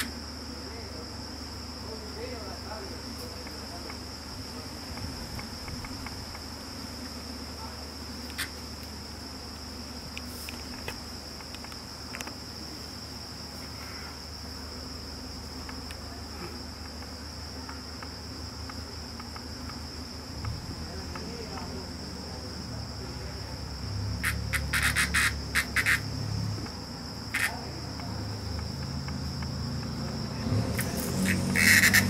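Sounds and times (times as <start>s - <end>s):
high-pitched insect shrilling: 24.1s - 26.5s, 27.2s - 27.8s, 30.4s - 32.0s.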